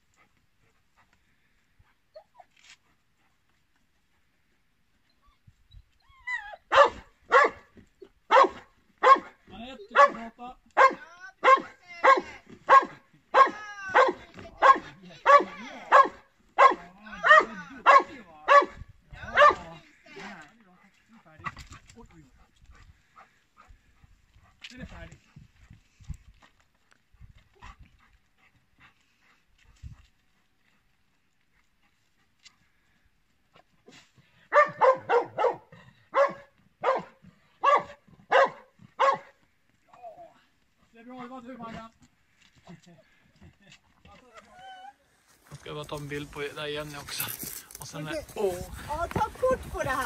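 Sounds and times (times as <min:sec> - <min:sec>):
dog barking: 0:06.7 - 0:07.7, 0:08.3 - 0:10.2, 0:10.8 - 0:19.7, 0:34.5 - 0:39.4.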